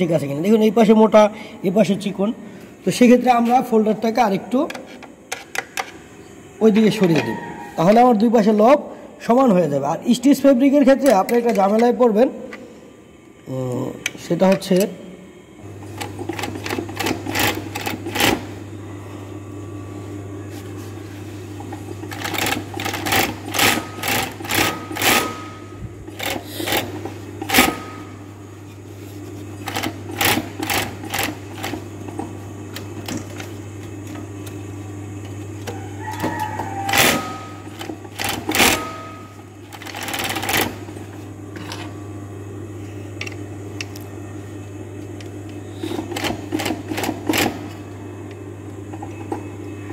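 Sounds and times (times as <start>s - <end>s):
sewing machine motor humming: 15.6s - 18.6s, 21.6s - 28.2s, 29.6s - 34.6s, 36.9s - 41.9s, 45.8s - 47.8s.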